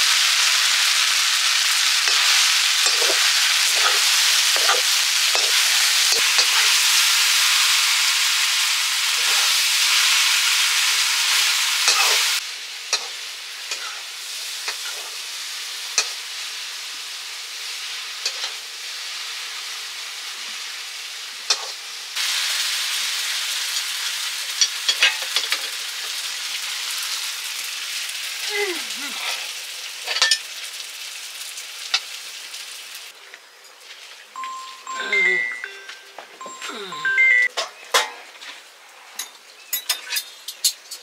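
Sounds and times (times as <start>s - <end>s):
food sizzling in a pan: 0.0s - 41.0s.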